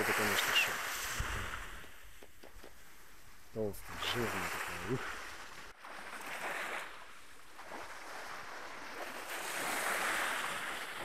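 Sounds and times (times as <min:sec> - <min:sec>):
wind on microphone: 0:00.0 - 0:02.7
waves washing onto sandy beach: 0:00.0 - 0:11.0.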